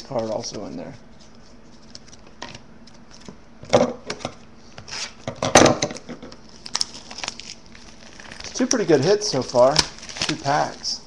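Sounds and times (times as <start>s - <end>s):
cards rustling: 0.4s - 3.4s, 6.5s - 11.0s.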